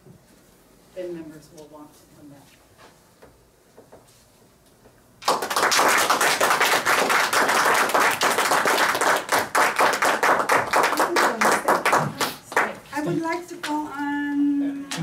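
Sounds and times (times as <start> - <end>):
audience applauding: 5.2 - 12.7.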